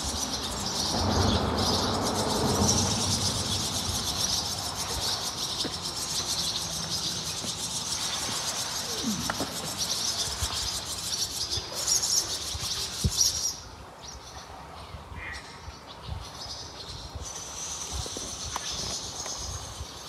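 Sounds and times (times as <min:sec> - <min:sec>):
birds chirping and singing: 0:00.0 - 0:14.5.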